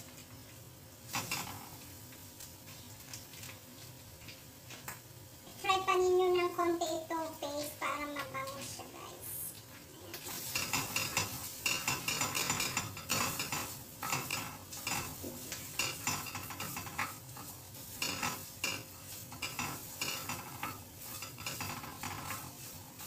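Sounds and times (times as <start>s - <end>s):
paste sizzling in oil: 0.0s - 23.0s
wooden spatula scraping pan: 10.2s - 23.0s.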